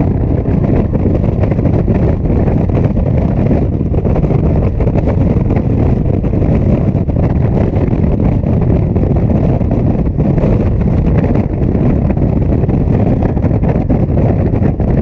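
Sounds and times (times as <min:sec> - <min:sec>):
motorcycle engine cruising: 0:00.0 - 0:15.0
wind rushing over microphone: 0:00.0 - 0:15.0.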